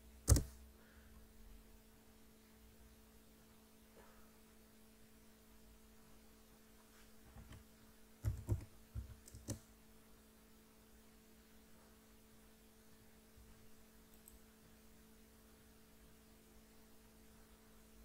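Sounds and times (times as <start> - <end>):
low electrical hum: 0.0 - 18.0
mouse and keyboard clicks: 0.2 - 0.6, 8.2 - 9.6.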